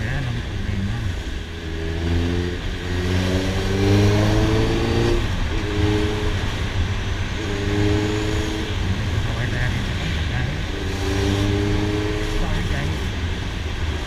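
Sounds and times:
motorcycle engine accelerating: 0:00.0 - 0:14.0.

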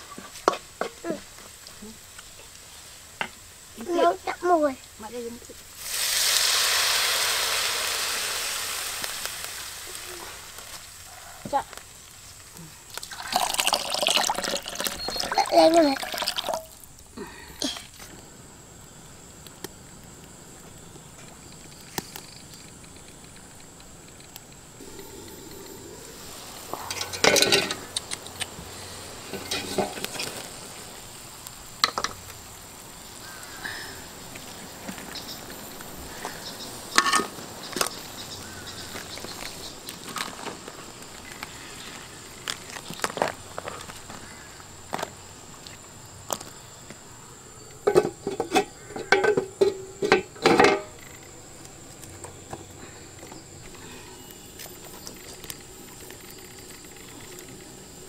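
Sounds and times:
liquid hissing in a wok: 0:05.6 - 0:16.9, 0:24.8 - 0:34.9.

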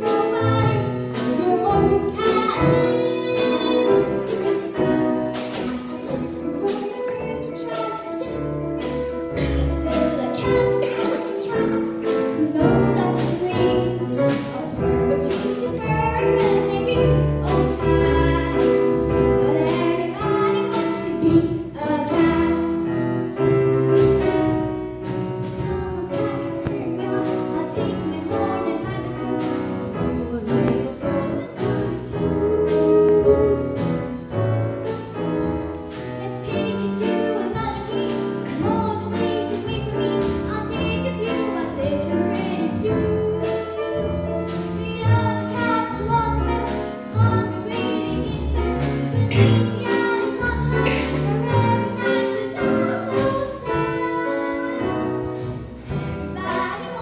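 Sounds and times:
girl singing into a microphone: 0:00.0 - 0:04.1, 0:09.4 - 0:22.6, 0:30.0 - 0:33.9, 0:44.8 - 0:55.1
drums steady beat: 0:00.0 - 0:57.0
jazz band playing: 0:00.0 - 0:57.0.

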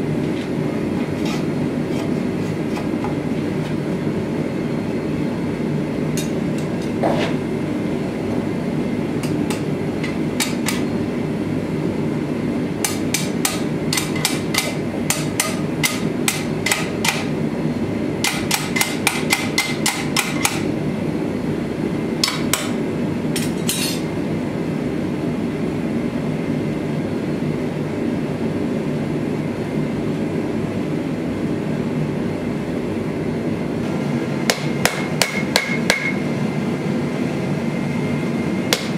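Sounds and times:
hammer striking hot metal: 0:09.2 - 0:10.9, 0:12.8 - 0:17.3, 0:18.2 - 0:20.7, 0:22.2 - 0:22.8, 0:34.4 - 0:36.2, 0:38.7 - 0:38.9.

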